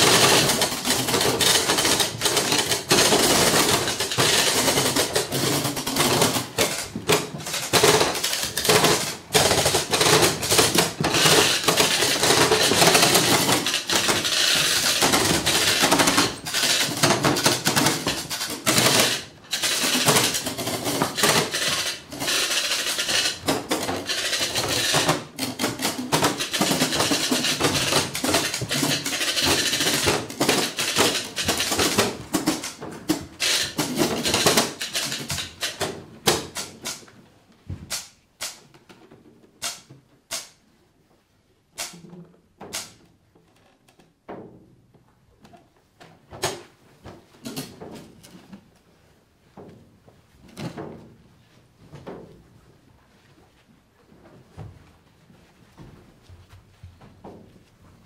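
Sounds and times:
noisemaker boxes rattling: 0.0 - 36.9.

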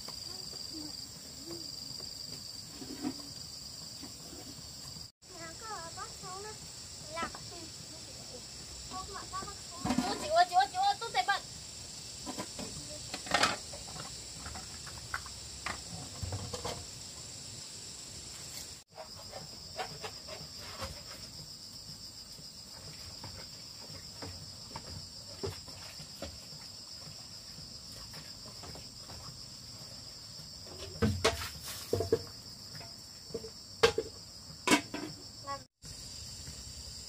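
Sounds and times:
insect chorus trilling: 0.0 - 37.0
sharp knocks and clatters: 30.7 - 35.2.

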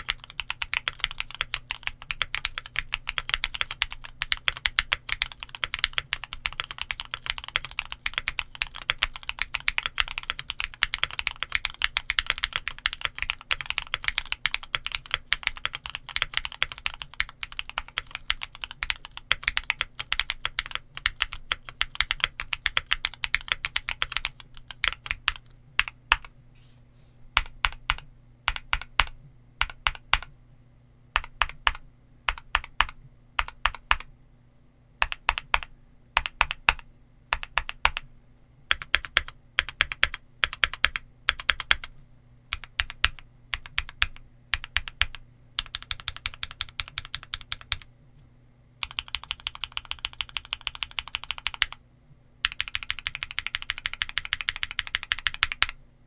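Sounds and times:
typing on mechanical keyboard: 0.0 - 26.3, 27.4 - 30.3, 31.2 - 34.1, 35.0 - 38.0, 38.7 - 41.9, 42.5 - 47.9, 48.8 - 51.8, 52.4 - 55.8.

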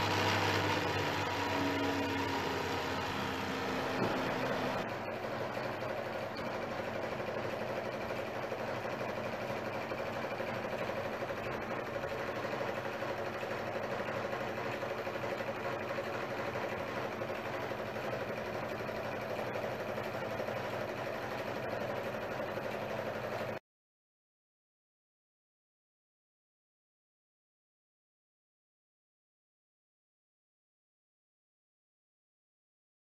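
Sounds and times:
film projector whirring: 0.0 - 23.6.

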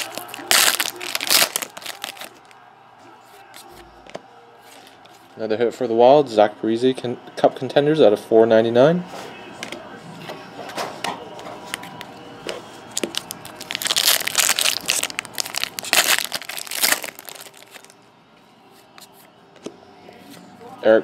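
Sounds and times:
wrapper crinkling and tearing: 0.0 - 2.5, 12.9 - 18.0.

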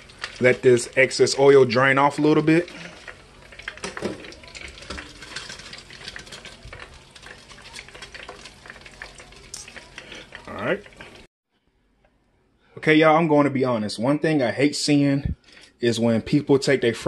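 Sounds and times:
hot oil sizzling and crackling: 0.0 - 11.3.

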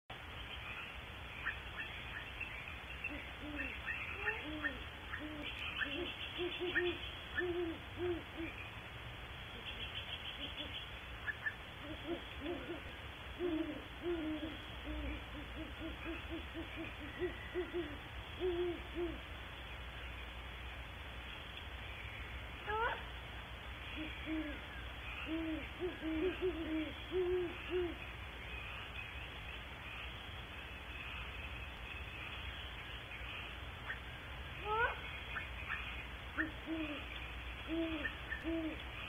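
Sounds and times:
owl hooting: 3.0 - 8.6, 9.6 - 19.3, 23.8 - 29.0, 33.4 - 39.0.

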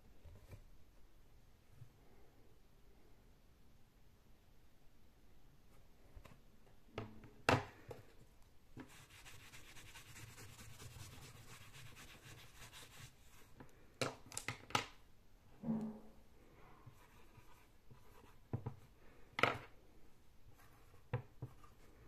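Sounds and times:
whiteboard being wiped: 8.8 - 13.5.

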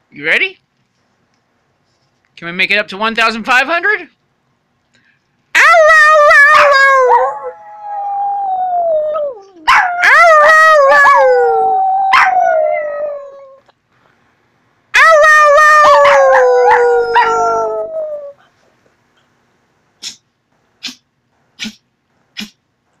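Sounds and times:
dog howling: 5.6 - 13.6, 15.0 - 18.4.

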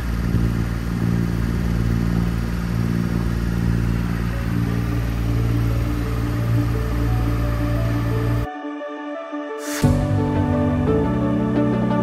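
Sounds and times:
boat engine humming: 0.0 - 8.5
faint music: 1.6 - 12.0.

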